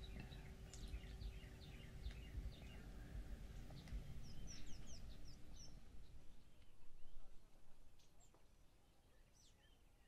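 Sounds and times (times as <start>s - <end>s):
low steady rumble: 0.0s - 7.9s
faint birds chirping: 0.0s - 10.0s.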